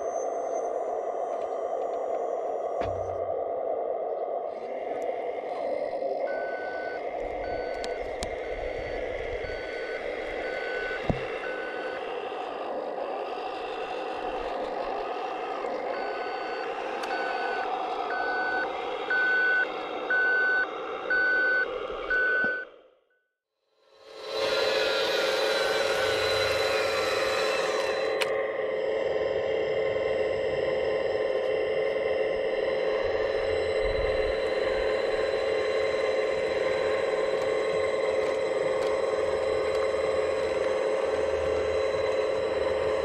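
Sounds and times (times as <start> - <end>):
truck engine: 4.5 - 22.9, 24.0 - 43.0
reversing beeper: 5.6 - 22.8.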